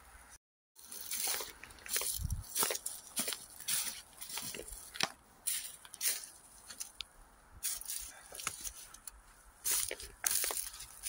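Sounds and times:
footsteps on dry leaves: 0:00.8 - 0:07.0, 0:07.6 - 0:11.0.

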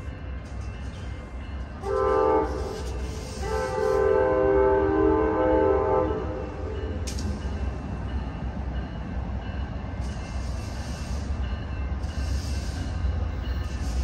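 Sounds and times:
locomotive horn blasts: 0:01.8 - 0:06.8.

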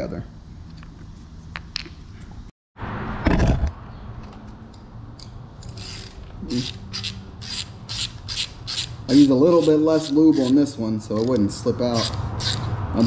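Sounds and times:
ratchet wrench clicking: 0:05.2 - 0:12.8.

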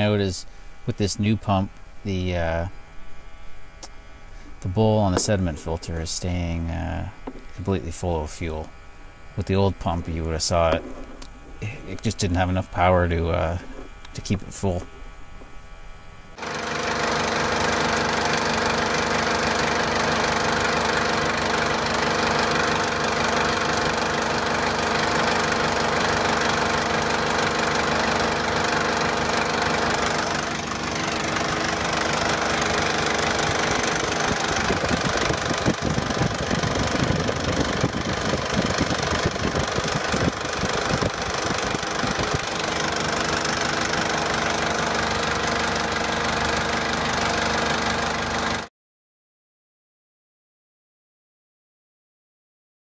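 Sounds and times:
diesel engine idling: 0:09.4 - 0:15.4, 0:16.3 - 0:48.7.

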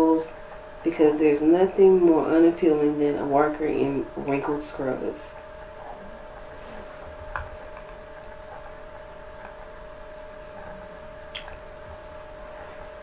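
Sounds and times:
faint hum: 0:00.0 - 0:13.0
computer mouse clicks: 0:09.4 - 0:09.7.

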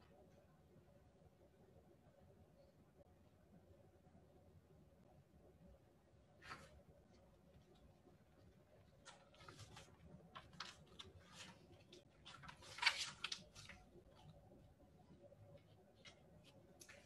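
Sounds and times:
rustling and shuffling: 0:06.3 - 0:17.0.

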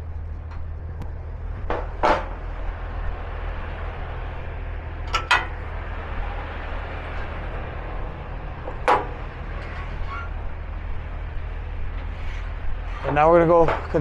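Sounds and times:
truck engine idling: 0:00.0 - 0:14.0
sharp metal clanks: 0:05.1 - 0:05.6.

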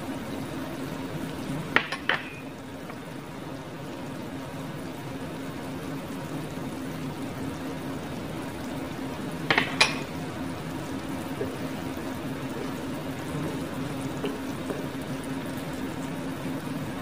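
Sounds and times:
food sizzling in oil: 0:01.6 - 0:02.7.

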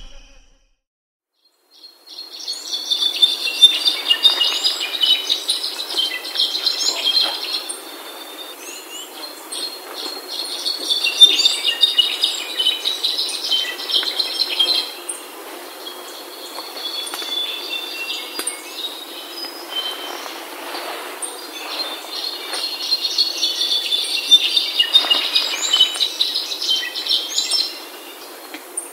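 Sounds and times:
bird high chattering calls: 0:21.3 - 0:27.8.

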